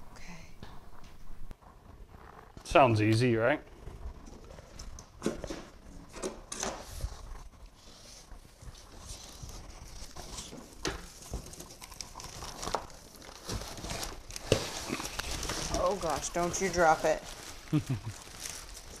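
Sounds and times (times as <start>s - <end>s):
cardboard box rustling and scraping: 4.2s - 19.0s.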